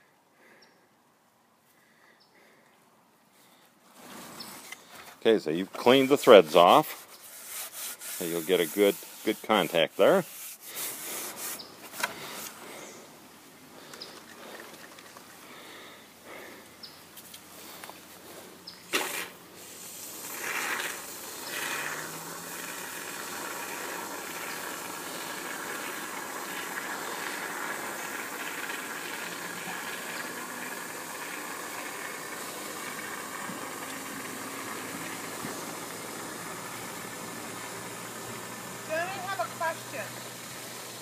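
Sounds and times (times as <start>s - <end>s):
short spray spurts: 3.9s - 12.9s, 18.8s - 41.0s
aerosol spray foam hissing: 19.0s - 41.0s.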